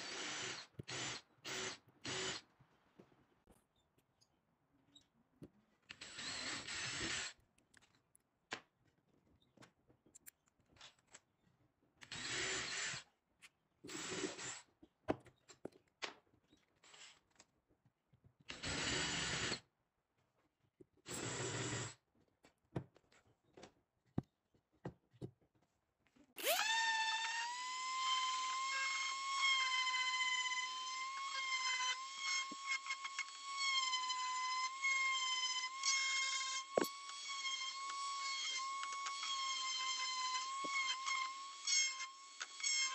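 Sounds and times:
cordless drill boring into plywood: 0:00.0 - 0:02.4, 0:05.9 - 0:07.4, 0:12.1 - 0:13.0, 0:18.5 - 0:19.6, 0:26.4 - 0:42.9.

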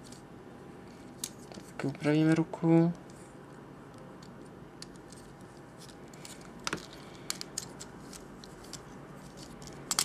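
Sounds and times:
plastic toy parts clicking: 0:06.1 - 0:08.8, 0:09.4 - 0:10.0.

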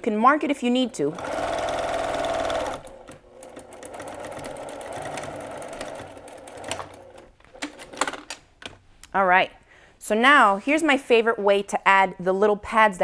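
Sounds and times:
sewing machine stitching: 0:00.7 - 0:07.3
clicks and knocks of handling: 0:07.4 - 0:08.8.

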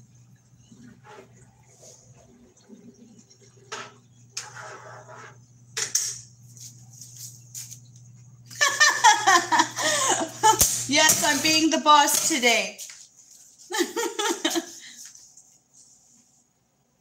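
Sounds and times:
low appliance hum: 0:00.0 - 0:17.0
rustling on kitchen counter: 0:03.8 - 0:05.6, 0:06.3 - 0:09.4, 0:10.3 - 0:16.6
woman laughing: 0:08.5 - 0:10.7, 0:13.6 - 0:15.0.

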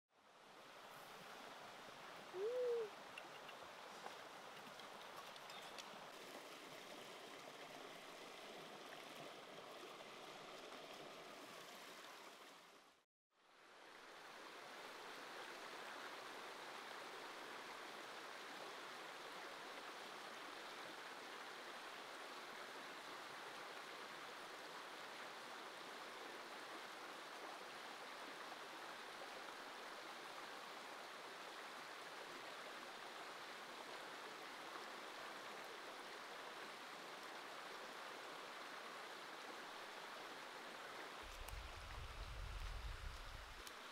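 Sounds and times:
stream running over rocks: 0:00.2 - 0:43.9.

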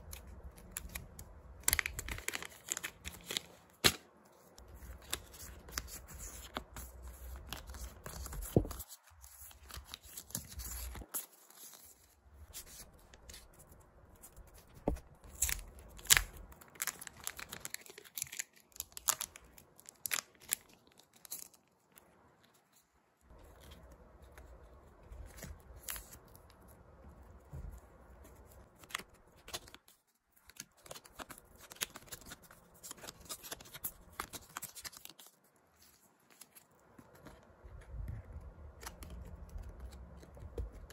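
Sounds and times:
plastic sleeves crinkling: 0:00.0 - 0:13.6, 0:14.4 - 0:22.6.

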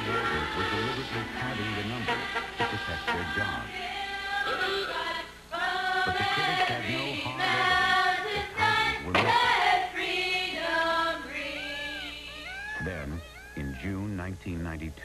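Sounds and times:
music with layered sung vocals: 0:00.0 - 0:12.5.

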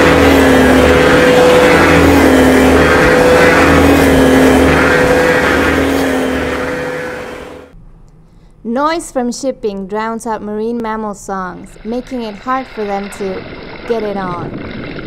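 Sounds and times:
ship engine rumble: 0:00.0 - 0:07.8, 0:11.1 - 0:15.0.

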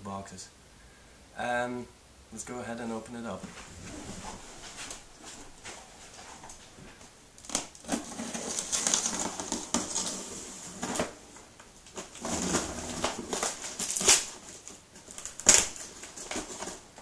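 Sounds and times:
sharp tape rips: 0:11.9 - 0:16.7
cardboard box scraping and rustling: 0:12.0 - 0:14.6.

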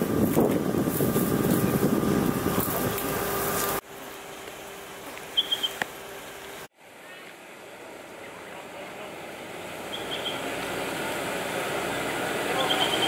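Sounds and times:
wind noise on microphone: 0:00.0 - 0:03.8
vehicle engine running: 0:00.0 - 0:13.0.

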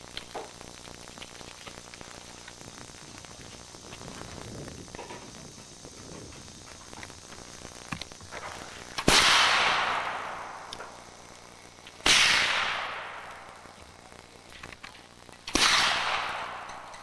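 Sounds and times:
rifle shots with echo: 0:09.0 - 0:10.7, 0:12.0 - 0:13.5, 0:15.5 - 0:17.0.

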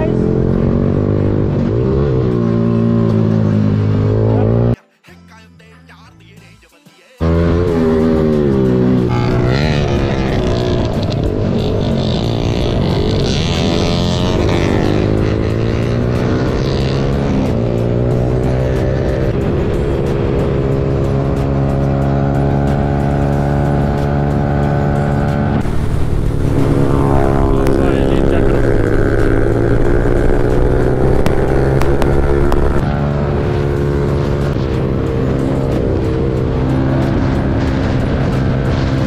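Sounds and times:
motorcycle engine revving: 0:00.0 - 0:04.8, 0:07.2 - 0:39.0.

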